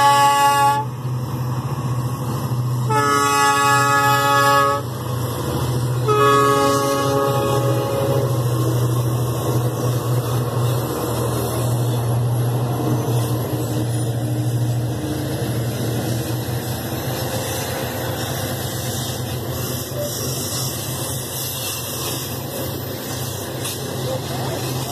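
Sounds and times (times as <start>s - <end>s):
train air horn blasts: 0.0s - 1.0s, 2.8s - 5.0s, 6.0s - 8.5s
diesel engines droning: 0.0s - 24.9s
train rolling by: 0.0s - 24.9s.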